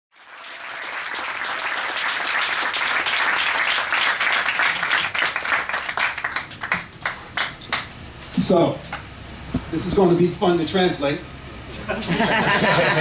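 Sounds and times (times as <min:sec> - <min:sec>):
audience applauding: 0:00.1 - 0:07.2.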